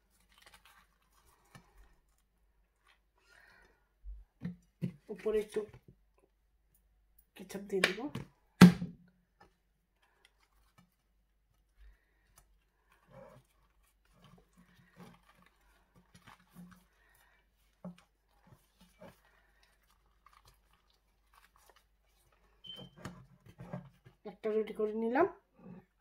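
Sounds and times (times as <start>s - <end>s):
tortilla rustling and tapping: 9.3s - 24.3s.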